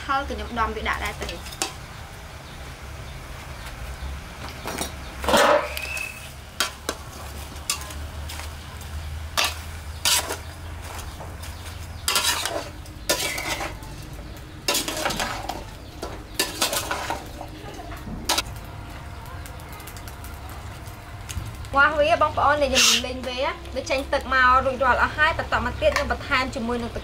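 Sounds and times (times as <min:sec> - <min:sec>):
metal spatula scraping metal pot: 0:09.4 - 0:10.5, 0:12.0 - 0:14.0, 0:14.7 - 0:15.7, 0:16.3 - 0:17.4, 0:22.7 - 0:23.1.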